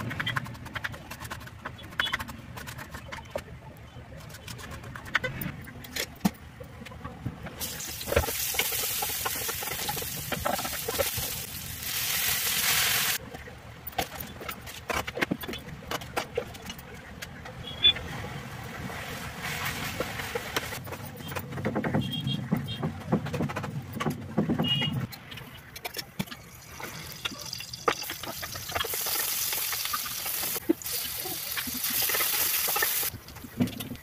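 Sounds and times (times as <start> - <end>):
garlic sizzling in hot oil: 7.6 - 13.2, 27.0 - 33.1.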